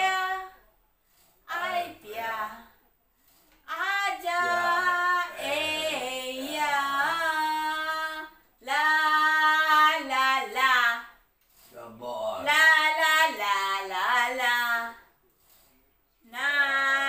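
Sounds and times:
woman singing unaccompanied: 0.0 - 0.6, 1.5 - 2.8, 3.7 - 11.2, 12.4 - 15.1, 16.2 - 17.0.

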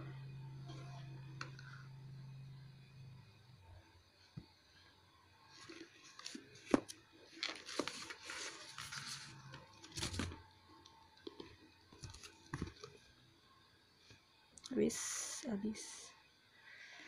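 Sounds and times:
cardboard rustling and scraping: 5.5 - 10.4.

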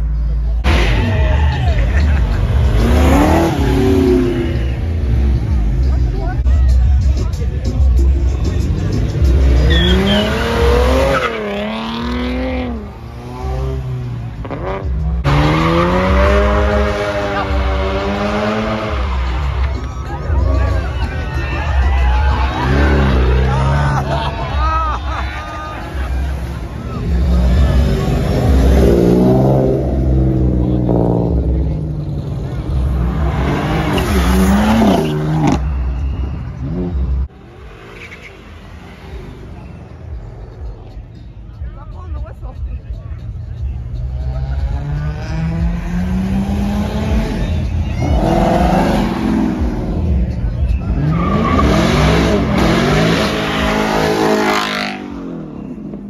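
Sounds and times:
sports car engine revving: 2.5 - 6.1, 8.2 - 19.4, 44.0 - 56.0
car engine revving hard: 51.0 - 55.7.

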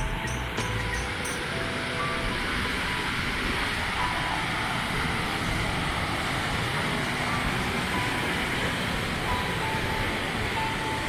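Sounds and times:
car road noise: 0.0 - 11.0.

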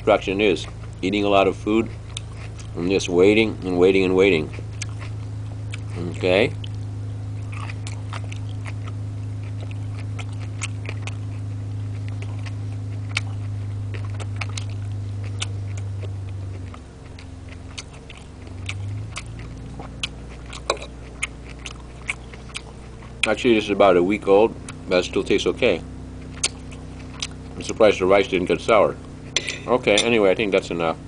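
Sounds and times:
chewing: 0.0 - 30.7
low machine hum: 0.0 - 31.0.

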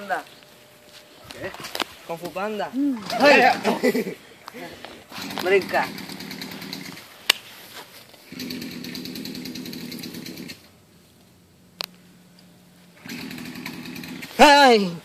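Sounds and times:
chainsaw engine revving: 3.0 - 4.0, 5.1 - 7.1, 8.2 - 10.8, 13.0 - 15.0.

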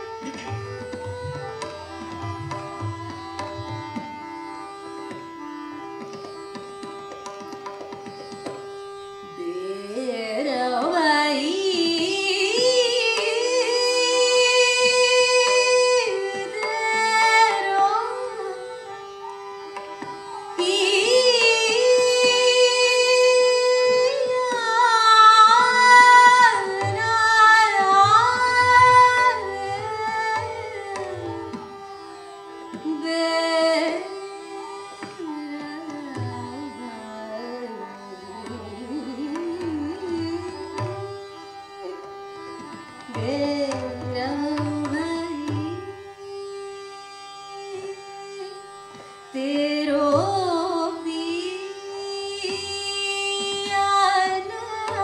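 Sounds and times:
tabla playing: 0.0 - 9.5, 19.7 - 31.9, 33.8 - 36.7, 38.4 - 41.5, 42.4 - 46.0, 52.3 - 55.0
tanpura drone: 0.0 - 55.0
woman singing classical melody: 9.3 - 18.9, 20.0 - 32.0, 32.6 - 46.7, 47.3 - 55.0.

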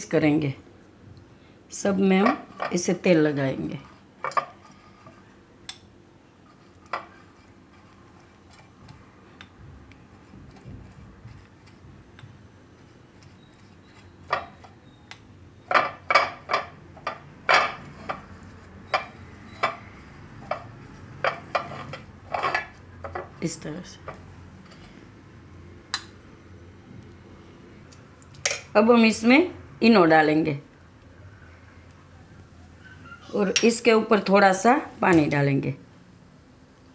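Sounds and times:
brush clinking and tapping on pan: 18.9 - 23.3.

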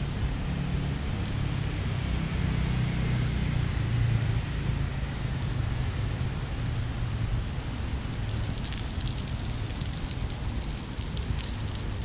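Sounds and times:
rain on wet pavement: 7.1 - 12.0.

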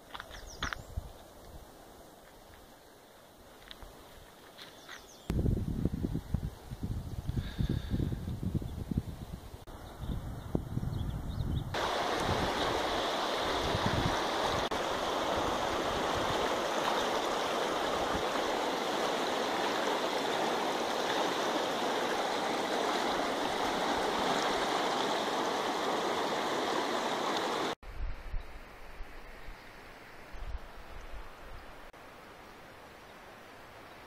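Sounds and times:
river rushing over rapids: 11.8 - 27.8.

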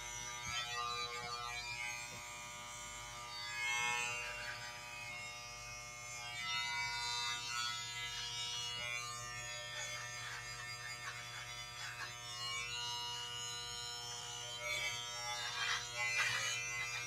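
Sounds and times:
electric hair clippers buzzing: 0.0 - 17.0
scratchy scrapes: 15.4 - 17.0.

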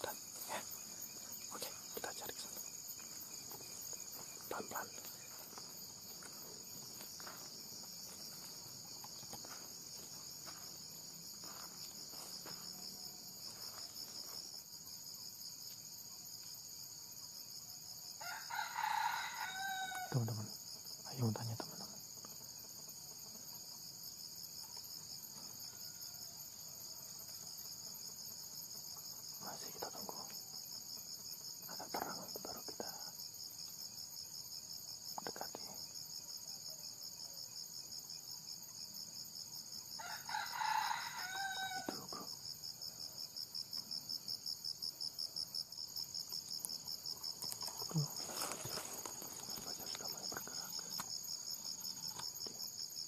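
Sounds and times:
insects chirping: 0.0 - 53.0
rooster crowing: 18.2 - 20.2, 25.5 - 26.9, 40.0 - 42.3.

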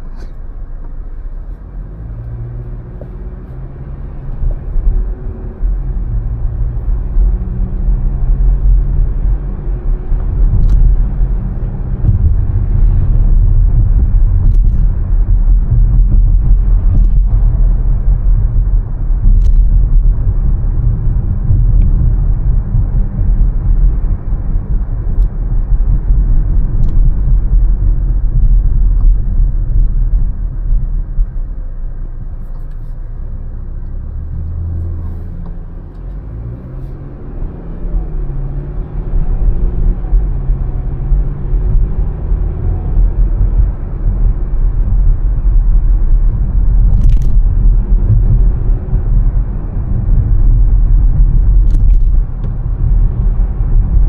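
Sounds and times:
car road and engine rumble: 0.0 - 54.0.

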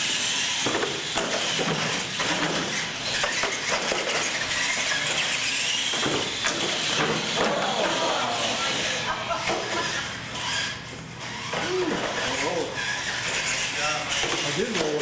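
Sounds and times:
toy trucks clattering on ramps: 0.0 - 15.0
tyre noise on concrete: 0.0 - 15.0
whining electric motor: 0.0 - 15.0.

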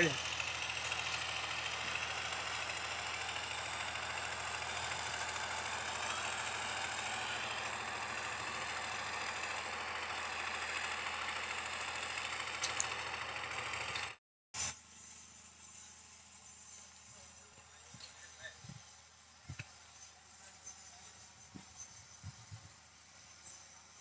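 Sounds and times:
diesel engine running: 0.0 - 24.0
short clicks: 12.6 - 12.9.

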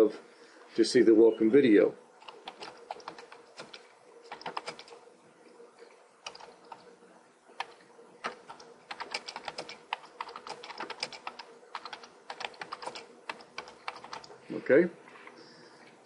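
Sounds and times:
faint steady hum: 0.0 - 16.0
typing on keyboard: 2.2 - 5.0, 6.2 - 6.9, 7.6 - 14.4.

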